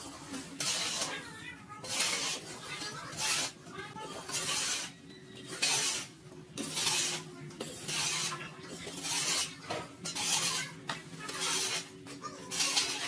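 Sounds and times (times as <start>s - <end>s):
rough scraping strokes: 1.8s - 11.9s.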